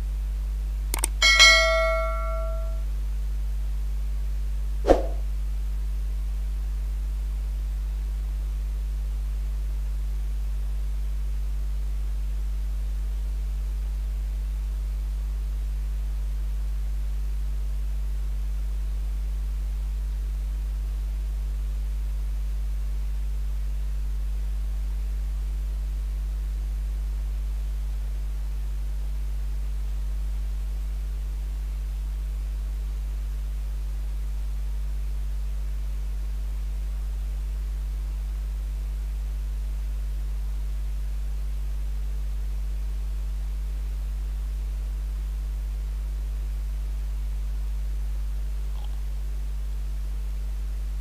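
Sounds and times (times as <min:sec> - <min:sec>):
low electrical hum: 0:00.0 - 0:51.0
sharp click: 0:01.0 - 0:02.8.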